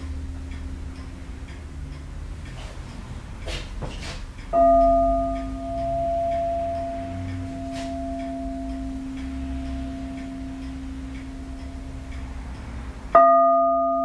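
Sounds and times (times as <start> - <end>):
metal pagoda ringing: 4.5 - 12.3, 13.1 - 14.0.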